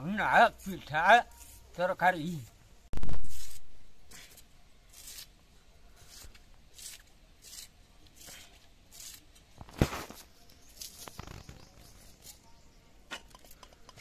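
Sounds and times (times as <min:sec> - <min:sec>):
knife slicing through onion: 0:03.0 - 0:05.4, 0:06.0 - 0:11.0.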